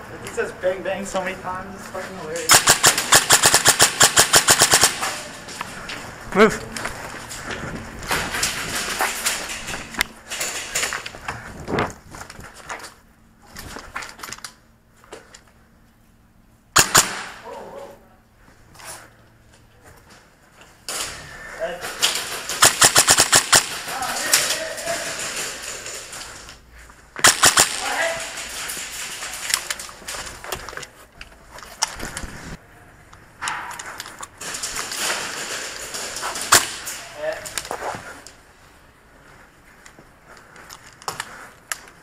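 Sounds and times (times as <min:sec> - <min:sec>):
airsoft rifle shots: 0:02.5 - 0:05.4, 0:16.8 - 0:17.6, 0:21.9 - 0:25.8, 0:27.2 - 0:29.4.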